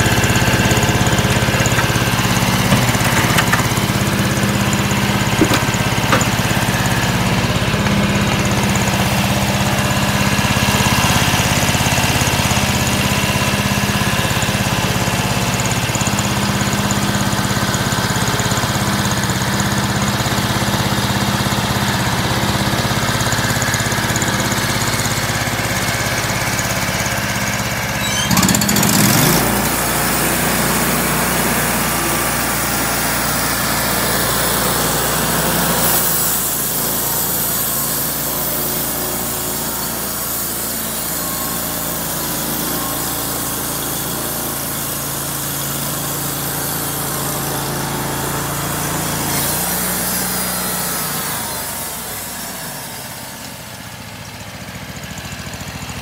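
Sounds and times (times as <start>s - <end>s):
sawmill gasoline engine running: 0.0s - 56.0s
band blade cutting log: 0.8s - 6.6s.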